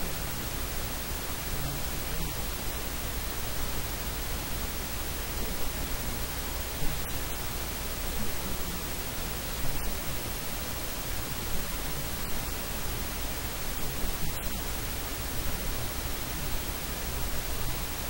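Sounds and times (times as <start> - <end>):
static hiss: 0.0 - 18.0.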